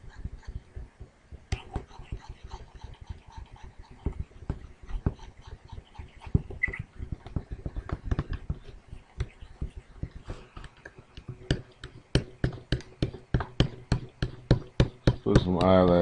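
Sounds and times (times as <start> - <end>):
stylus tapping on drawing tablet: 3.8 - 16.0.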